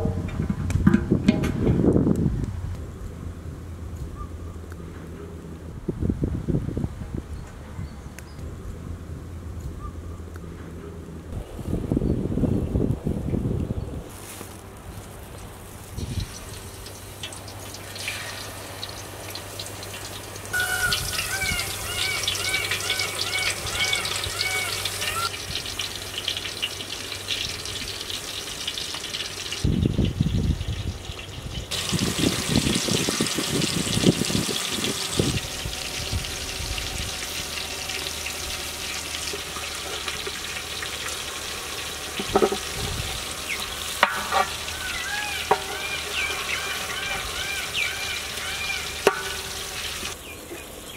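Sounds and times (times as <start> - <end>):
low rumbling thumps: 0.0 - 14.1
fish sizzling in oil: 15.5 - 50.2.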